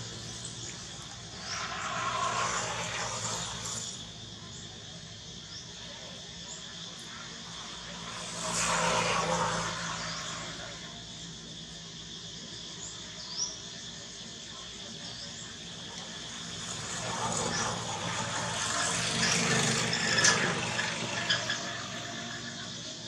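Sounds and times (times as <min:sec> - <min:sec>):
loud noisy swell: 0:00.0 - 0:04.2, 0:07.2 - 0:11.1
insect drone: 0:00.0 - 0:23.0.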